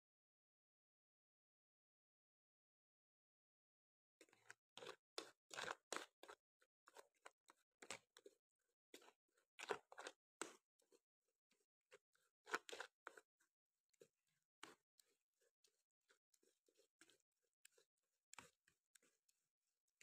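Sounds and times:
spoon scraping pulp through strainer: 4.2s - 11.6s, 12.2s - 13.2s, 13.9s - 19.2s.

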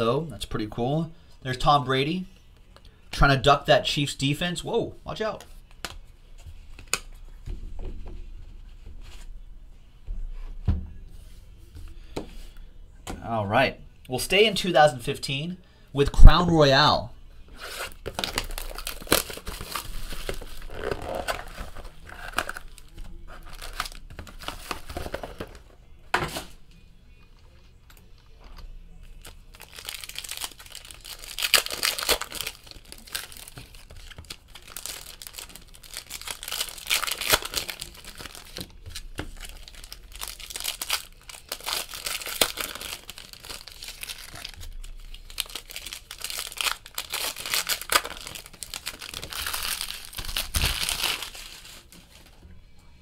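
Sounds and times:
card packs torn open: 17.6s - 25.6s, 29.1s - 52.3s
plastic wrapping crinkling and tearing: 17.6s - 25.6s, 29.0s - 52.4s.

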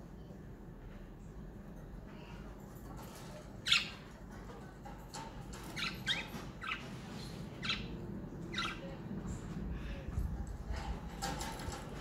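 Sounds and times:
budgerigars chirping and squawking: 3.6s - 4.1s, 5.6s - 9.0s.

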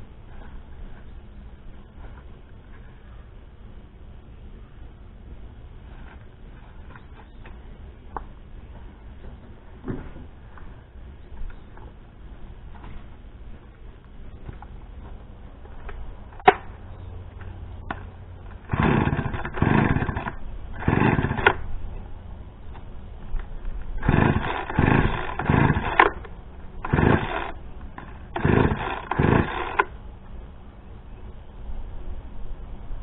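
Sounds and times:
chainsaw starting bursts: 18.5s - 21.6s, 24.0s - 30.0s.

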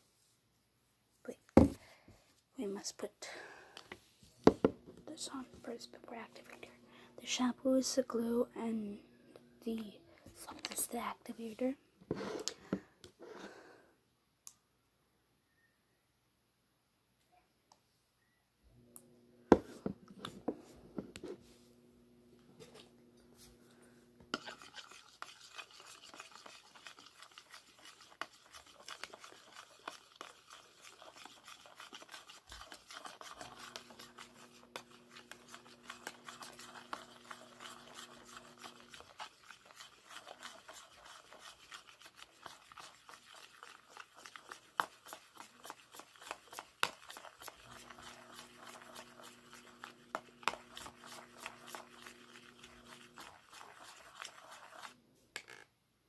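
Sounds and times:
fork scraping in a bowl: 24.3s - 55.6s.

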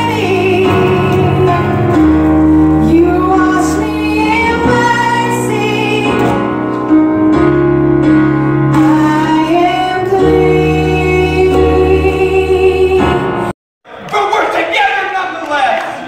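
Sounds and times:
woman singing into a microphone: 0.0s - 2.0s, 2.7s - 6.7s, 8.7s - 13.5s
electronic keyboard chords: 0.0s - 13.5s.

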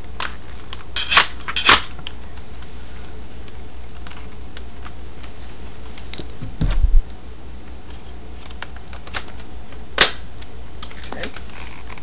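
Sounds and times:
steady low hum: 0.0s - 12.0s
low thumps: 6.4s - 7.1s.

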